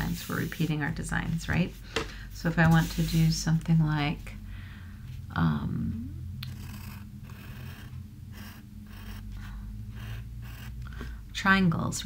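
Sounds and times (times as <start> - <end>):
pencil scratching on paper: 2.6 - 3.3, 6.5 - 10.8.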